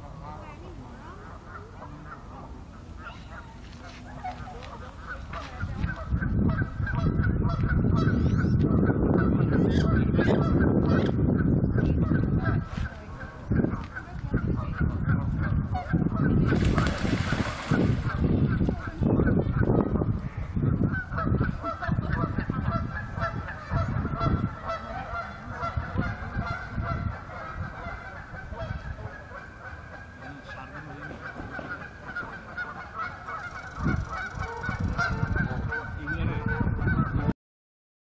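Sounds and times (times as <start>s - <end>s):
geese honking: 20.9s - 37.3s.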